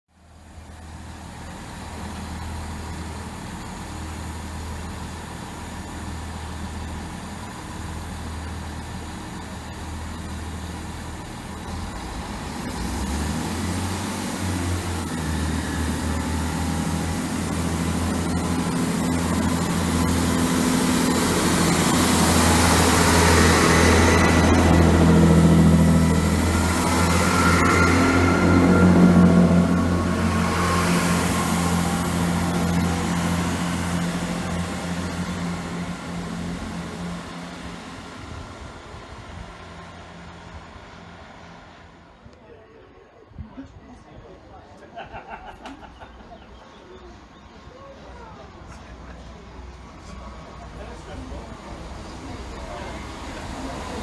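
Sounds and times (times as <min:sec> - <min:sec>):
diesel train engine hum: 0:00.1 - 0:54.0
train carriages passing: 0:00.3 - 0:54.0.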